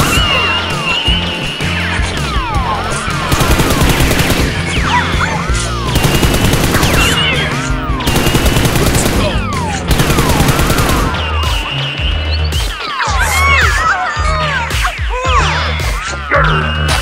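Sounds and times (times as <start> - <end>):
background music: 0.0 - 17.0
automatic gunfire bursts: 3.3 - 4.6, 6.0 - 7.2, 8.1 - 11.2.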